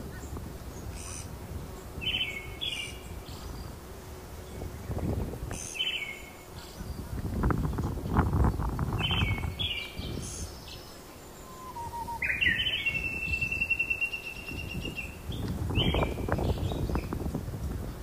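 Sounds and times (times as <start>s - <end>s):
birds calling and singing: 0.1s - 17.2s
bird trill: 9.0s - 15.2s.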